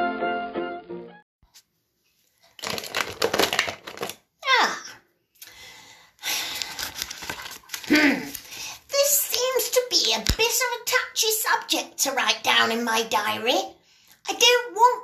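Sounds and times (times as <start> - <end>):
music: 0.0 - 1.2
paper pages rustling: 2.4 - 4.2, 6.4 - 10.5.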